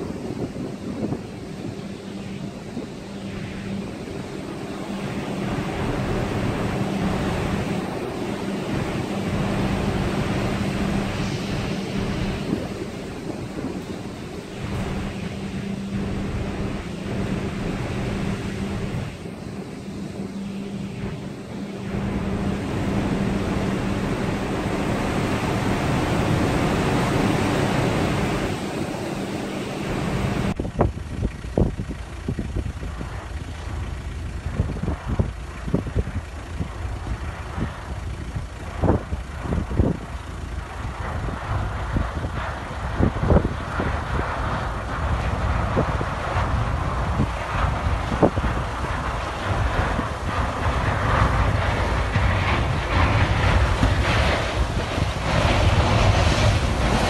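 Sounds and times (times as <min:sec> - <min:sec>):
steady low hum: 0:00.0 - 0:57.0
strong wind over sea: 0:00.0 - 0:57.0
ship breaking through ice: 0:48.6 - 0:57.0.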